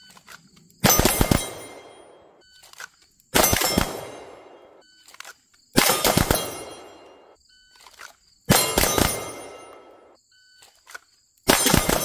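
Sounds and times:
pistol shots with echo: 0.8 - 2.4, 3.3 - 4.8, 5.8 - 7.4, 8.5 - 10.2, 11.5 - 12.0.

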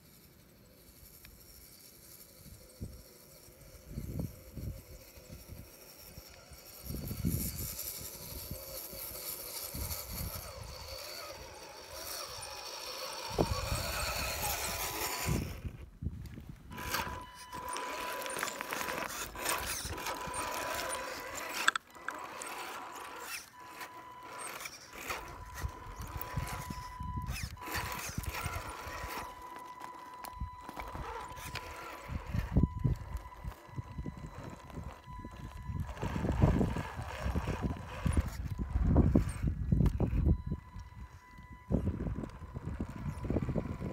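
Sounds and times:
electric motor whine: 0.3 - 15.9, 16.6 - 43.9
wind on microphone: 13.2 - 17.2, 30.4 - 43.9.

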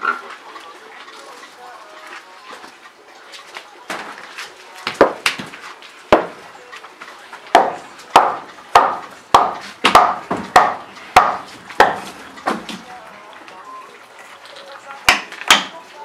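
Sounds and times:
hammer striking wood: 4.9 - 5.5, 6.1 - 6.4, 7.5 - 12.8, 15.1 - 15.8.

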